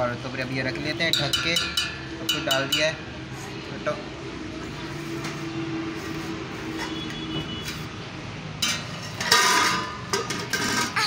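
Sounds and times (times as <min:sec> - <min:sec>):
steel pots and utensils clattering: 0:00.6 - 0:03.1, 0:08.6 - 0:11.0.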